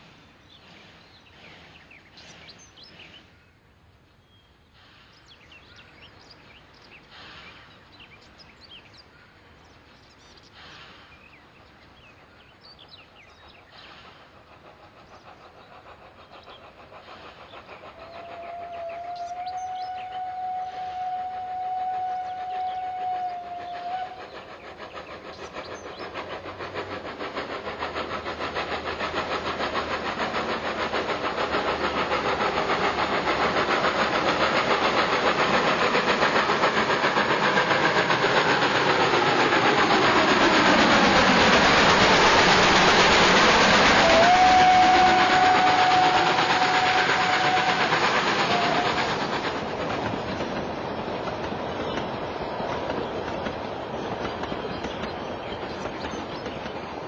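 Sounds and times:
model train wheels clicking: 0:13.2 - 0:57.0
steady whistle tone: 0:17.6 - 0:27.1, 0:27.7 - 0:49.7.

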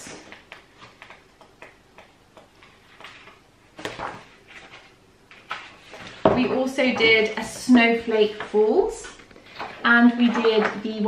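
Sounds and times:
book pages flicking and rustling: 0:00.0 - 0:06.2.

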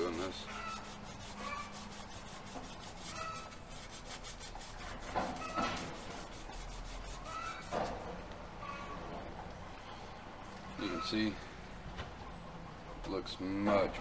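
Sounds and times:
abrasive cloth rubbing steel blade: 0:00.0 - 0:07.9.

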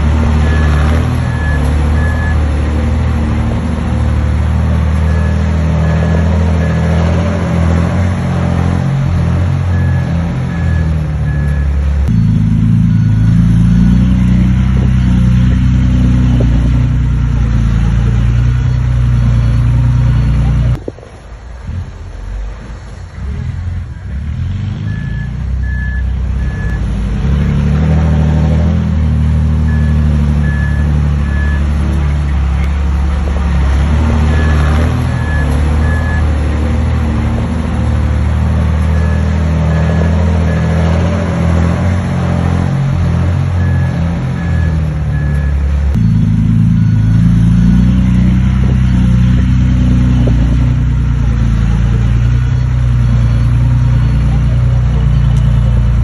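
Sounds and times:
heavy diesel machinery running: 0:00.0 - 0:56.0
reversing alarm beeping: 0:00.2 - 0:02.6, 0:05.0 - 0:07.6, 0:09.4 - 0:15.5, 0:24.8 - 0:26.9, 0:29.2 - 0:31.9, 0:34.0 - 0:36.7, 0:38.8 - 0:41.5, 0:43.1 - 0:51.2.

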